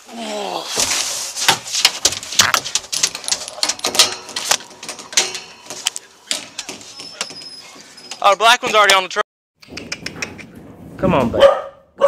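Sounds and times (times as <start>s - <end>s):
metal clicks and knocks rattling: 1.7s - 9.0s.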